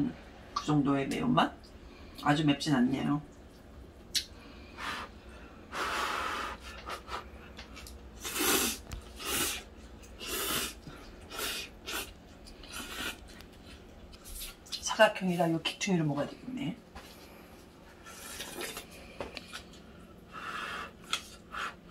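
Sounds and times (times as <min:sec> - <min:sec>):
person slurping noodles: 0:08.2 - 0:12.1, 0:12.7 - 0:13.2.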